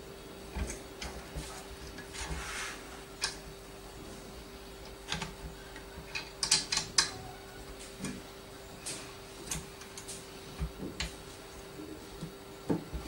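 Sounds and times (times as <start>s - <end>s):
faint steady hum: 0.0s - 13.0s
metal parts clicking and knocking: 6.1s - 7.2s.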